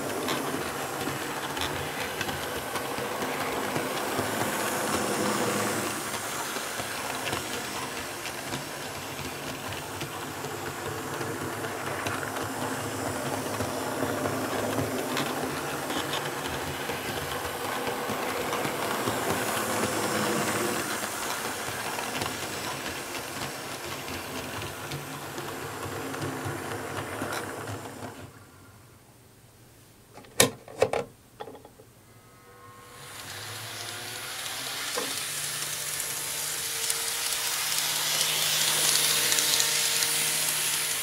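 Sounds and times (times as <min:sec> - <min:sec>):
model train rolling rumble: 0:00.0 - 0:28.4, 0:32.6 - 0:41.0.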